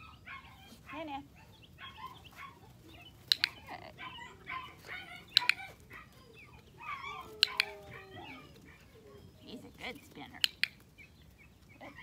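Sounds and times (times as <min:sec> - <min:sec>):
birds chirping: 0:00.0 - 0:12.0
sharp double clicks: 0:03.3 - 0:03.6, 0:05.3 - 0:05.6, 0:10.4 - 0:10.8.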